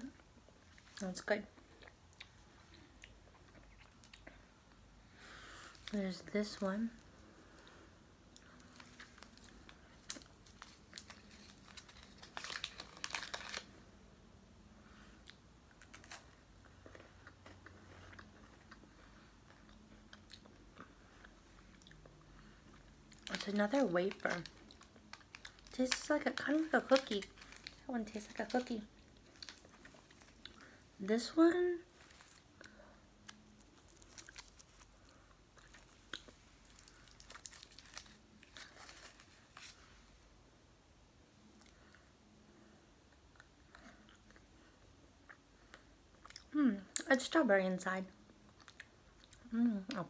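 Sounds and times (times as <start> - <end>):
crunching wafer candy: 8.3 - 13.8, 21.6 - 30.8, 31.9 - 39.8
foil wrapper crinkling: 8.8 - 13.7, 23.2 - 30.4, 33.5 - 39.8.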